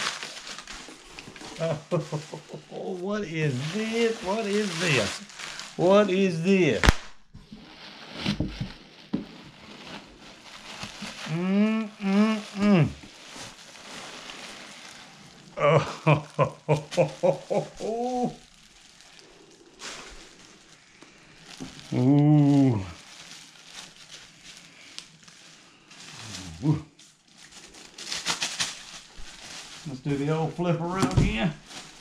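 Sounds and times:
plastic wrap crinkling: 0.0 - 32.0
man hooting and humming: 11.2 - 13.1, 15.6 - 18.5, 21.8 - 23.0, 26.2 - 27.0.

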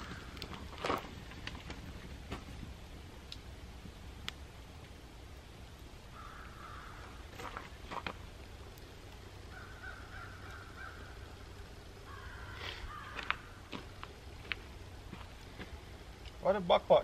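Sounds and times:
wood fire crackling: 0.0 - 17.0.

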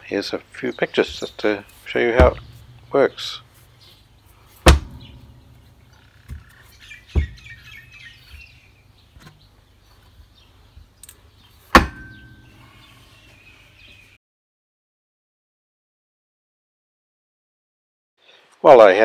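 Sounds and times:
low steady hum: 1.2 - 9.3
sharp metal knocks: 2.0 - 3.6, 4.6 - 7.8, 11.7 - 12.7.

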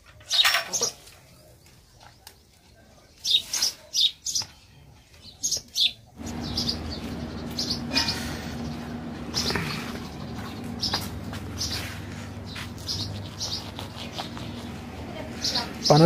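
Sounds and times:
birds chirping: 0.3 - 16.0
low hum: 6.2 - 16.0.

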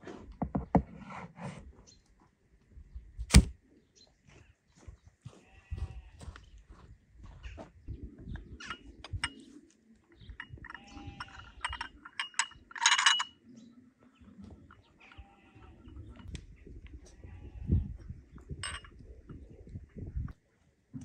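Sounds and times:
farmyard animals calling: 8.5 - 12.1, 13.4 - 18.1.

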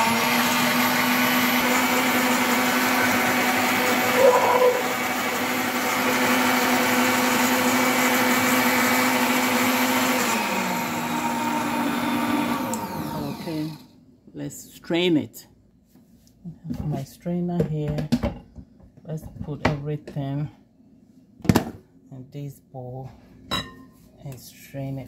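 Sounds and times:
blender motor running: 0.0 - 13.9.

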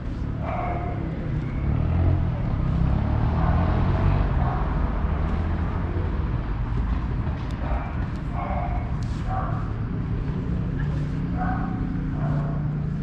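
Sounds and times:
vehicle driving past: 0.1 - 7.4.

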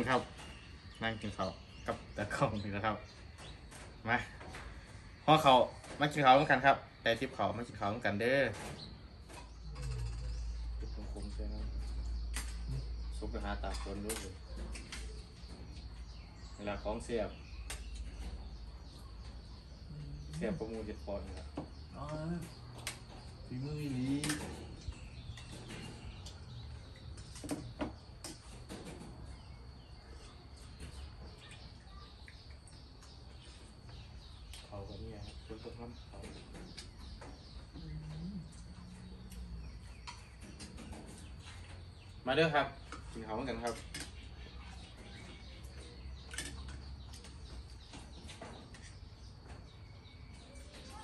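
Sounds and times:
faint bird chirps: 0.0 - 51.0.

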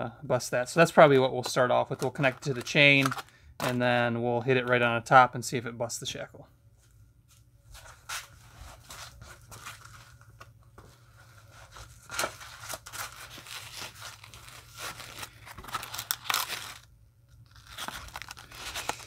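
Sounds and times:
plastic packaging crinkling: 0.8 - 3.8, 11.6 - 19.0.

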